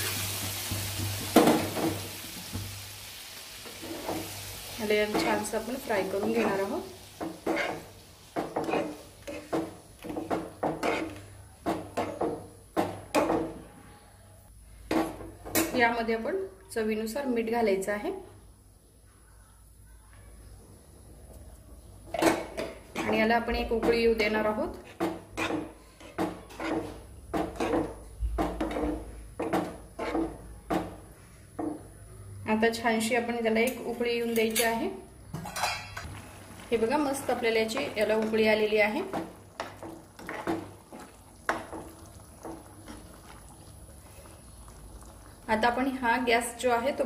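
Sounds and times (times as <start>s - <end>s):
spatula scraping frying pan: 3.6s - 12.2s, 24.7s - 30.4s, 35.4s - 43.3s.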